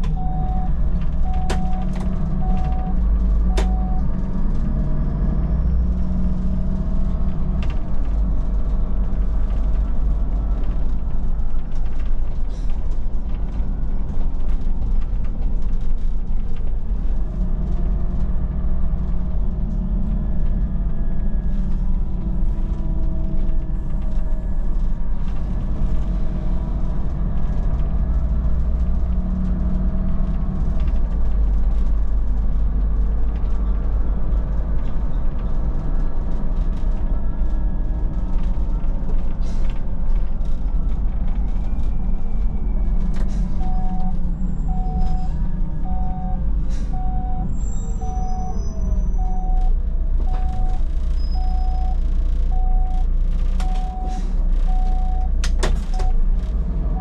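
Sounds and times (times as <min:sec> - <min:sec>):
bus engine rumble and whine: 0:00.0 - 0:57.0
regular beeping: 0:00.1 - 0:04.0, 0:43.6 - 0:46.4, 0:47.0 - 0:48.5, 0:49.2 - 0:55.4.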